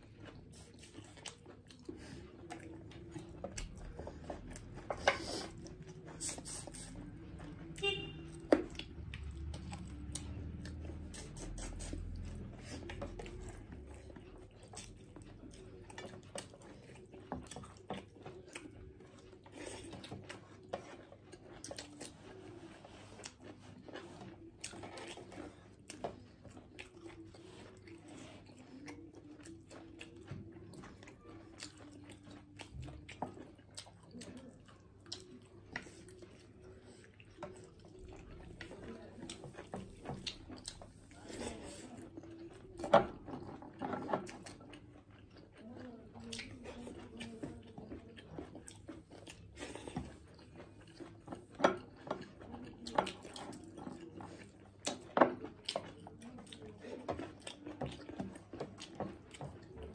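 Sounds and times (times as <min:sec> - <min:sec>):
people chewing food: 0:00.0 - 0:59.9.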